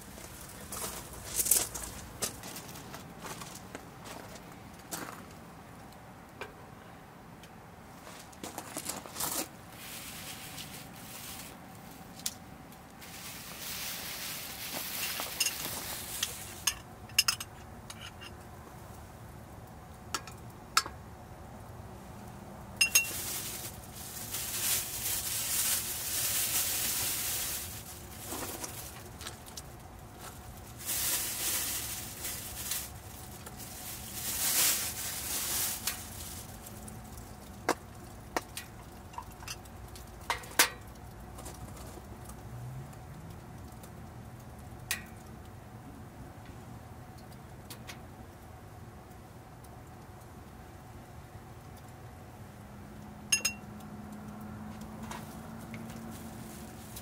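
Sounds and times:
water hissing in a hot pot: 13.0s - 16.7s
utensils clinking and knocking: 14.8s - 18.4s, 22.8s - 23.2s, 53.4s - 53.6s.

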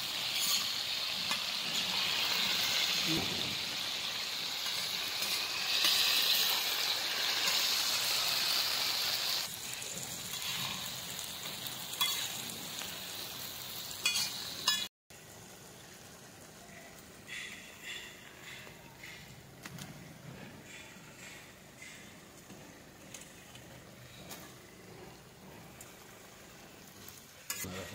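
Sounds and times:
food sizzling in a pan: 0.0s - 18.8s, 25.2s - 27.9s.

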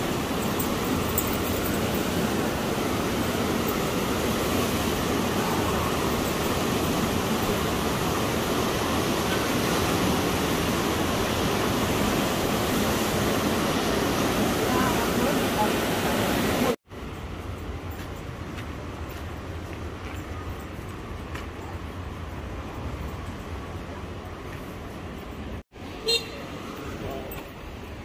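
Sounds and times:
fast-flowing river water: 0.0s - 16.8s.

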